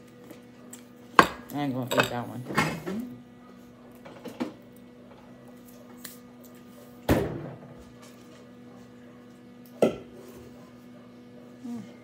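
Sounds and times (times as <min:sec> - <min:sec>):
tableware set down on countertop: 0:09.8 - 0:10.2.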